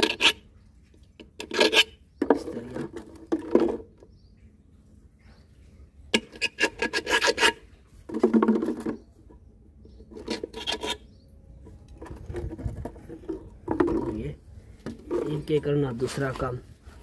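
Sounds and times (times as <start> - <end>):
wire scraping plastic cap: 0.0 - 0.4, 10.1 - 11.0.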